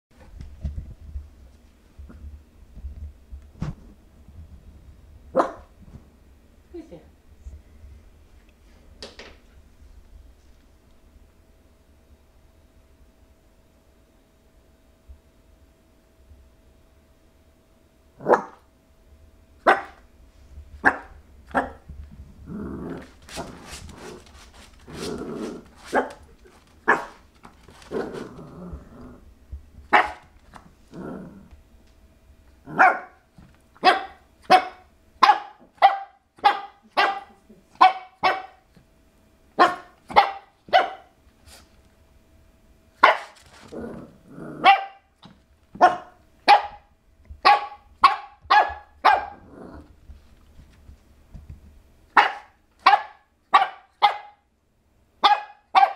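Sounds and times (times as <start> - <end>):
puppy barking: 5.4 - 5.7, 18.2 - 18.6, 19.6 - 20.0, 20.8 - 21.8, 26.9 - 27.2, 29.9 - 30.3, 32.7 - 33.2, 33.8 - 38.6, 39.6 - 41.2, 43.0 - 43.4, 44.6 - 45.1, 45.8 - 49.4, 52.2 - 54.4, 55.2 - 55.9
puppy growling: 22.4 - 27.1, 27.7 - 29.3, 30.8 - 31.6, 43.4 - 44.7, 49.3 - 50.0.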